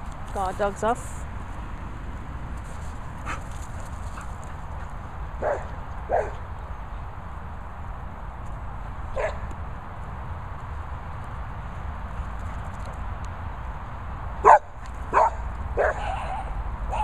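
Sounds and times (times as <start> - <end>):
dog barking: 5.4 - 6.4, 9.2 - 9.4, 14.4 - 17.0.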